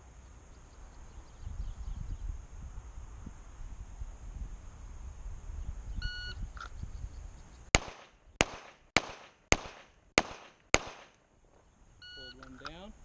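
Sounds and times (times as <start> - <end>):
pistol shots: 7.8 - 11.2.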